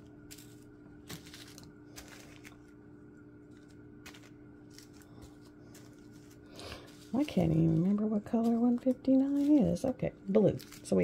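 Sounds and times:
steady low hum: 0.0 - 11.0
plastic bags clicking and rustling: 3.5 - 11.0.

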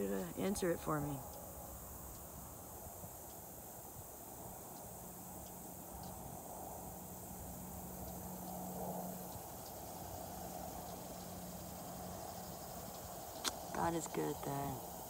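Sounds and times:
insect chorus drone: 0.0 - 15.0.

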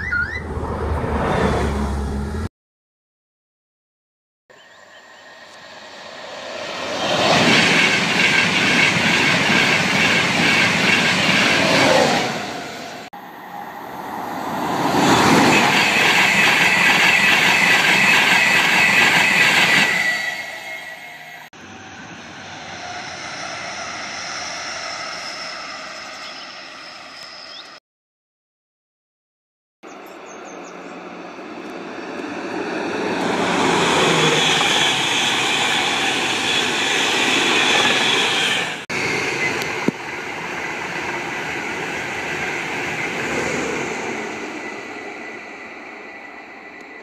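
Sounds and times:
train passing at speed: 0.2 - 2.5, 4.6 - 27.8, 29.9 - 47.0
distant diesel train passing: 4.5 - 27.8, 29.9 - 47.0.

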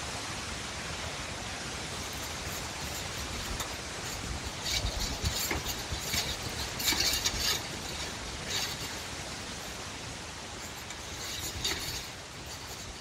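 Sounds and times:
wind noise: 0.0 - 13.0
clicking and rattling: 2.0 - 9.8, 10.6 - 13.0.

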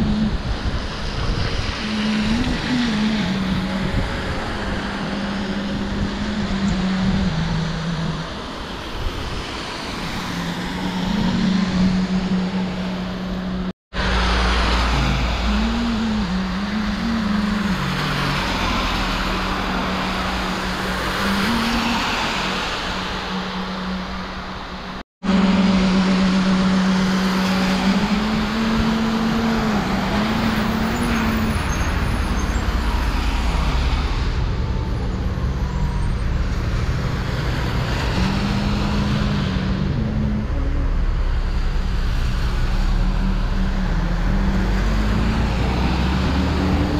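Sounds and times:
tyre hiss of passing vehicles: 14.0 - 39.9.

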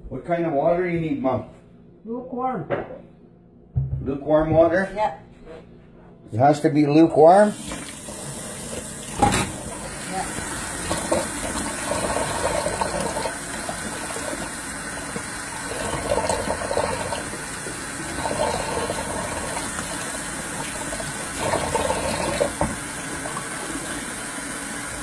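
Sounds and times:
kitchen tap running: 7.4 - 25.0
water splashing into sink: 7.5 - 25.0.

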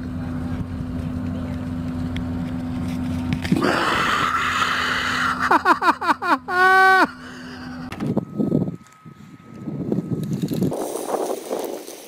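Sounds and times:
low hum: 0.0 - 12.0
breathy high shriek: 3.6 - 5.5, 6.6 - 7.9
wind rumbling on microphone: 8.0 - 12.0.

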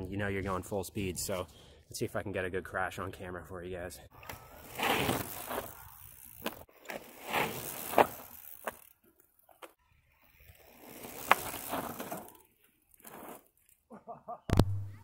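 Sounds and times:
bike tyres scrubbing on dirt: 4.4 - 8.9, 10.2 - 13.8.

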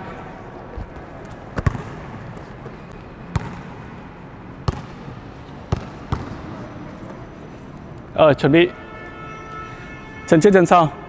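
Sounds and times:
basketballs bouncing on hard floor: 0.9 - 3.8, 4.6 - 6.6.

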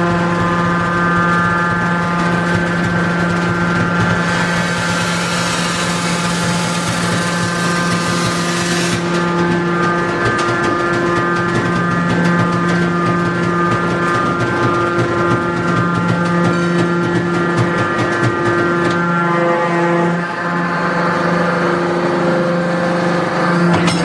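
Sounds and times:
hydraulic unit hum and whine: 0.0 - 24.0.

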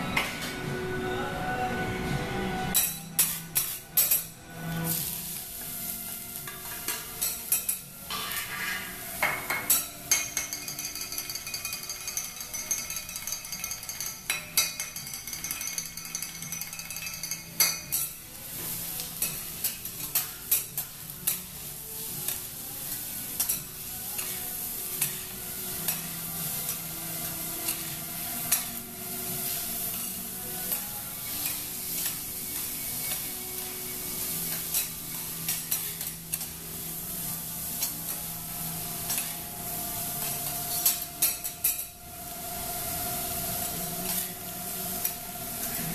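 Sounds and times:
food sizzling on a griddle: 2.7 - 45.9
metal spatula scraping and clacking: 6.4 - 18.2, 23.4 - 24.4, 25.0 - 28.8, 34.4 - 36.6, 39.0 - 39.4, 40.2 - 42.0, 44.0 - 45.9.

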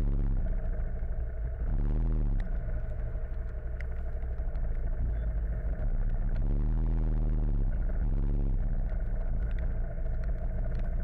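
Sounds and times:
motorcycle engine idling: 0.0 - 11.0
light ticks: 2.4 - 6.5, 8.6 - 11.0.

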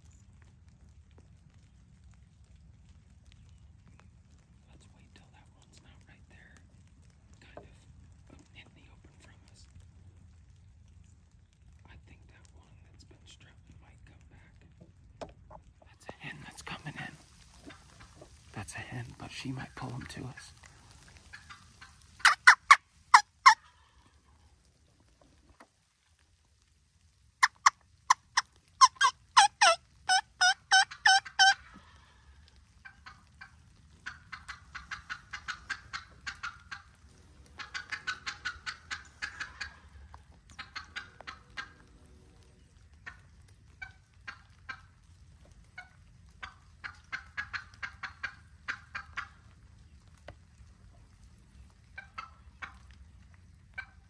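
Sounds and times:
turkey hen yelping: 20.8 - 24.4, 27.4 - 41.8, 43.0 - 44.9, 45.8 - 49.5, 51.9 - 52.8, 53.7 - 54.0.

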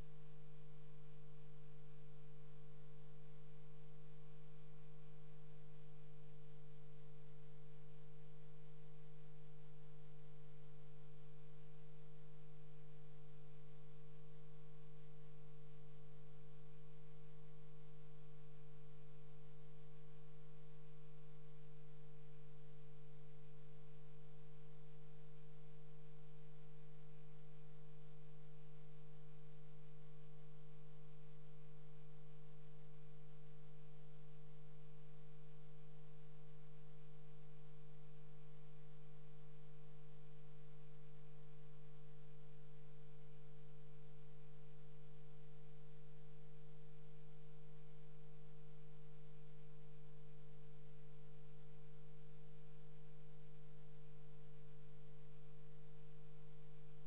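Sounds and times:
steady electrical hum: 0.0 - 57.0.

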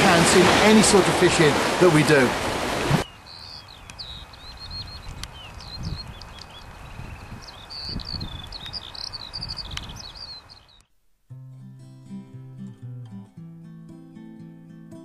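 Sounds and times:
small birds chirping: 3.0 - 10.9
acoustic guitar playing: 11.3 - 15.0.

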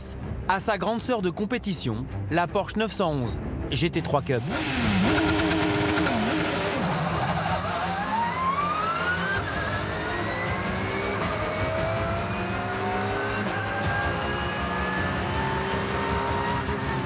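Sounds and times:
race car engine revving: 4.2 - 17.0.

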